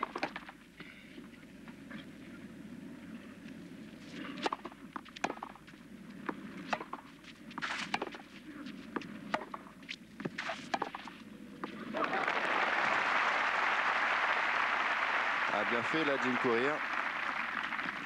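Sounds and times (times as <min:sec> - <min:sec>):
racquets striking tennis ball: 0:04.3 - 0:05.7, 0:06.3 - 0:08.3, 0:08.9 - 0:11.8.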